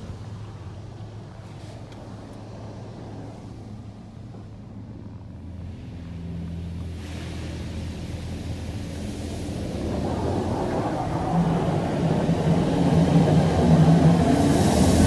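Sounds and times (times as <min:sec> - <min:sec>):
car wash motors humming: 0:00.0 - 0:15.0
spray hissing over car: 0:06.5 - 0:15.0.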